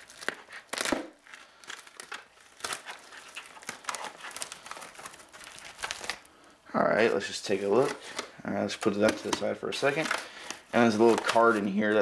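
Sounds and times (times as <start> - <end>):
plastic mailer bag crinkling: 0.0 - 6.3, 7.0 - 12.0.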